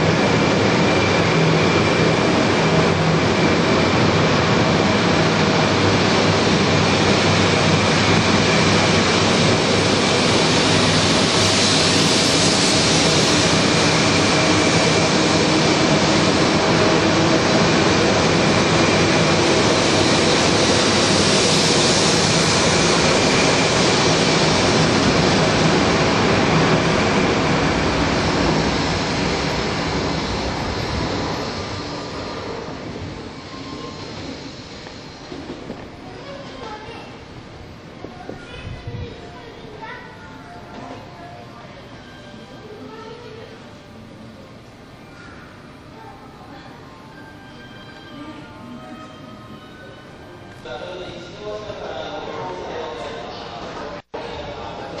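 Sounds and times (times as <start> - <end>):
train wheel and motor rush: 0.0 - 41.2
high-pitched train whine: 0.0 - 55.0.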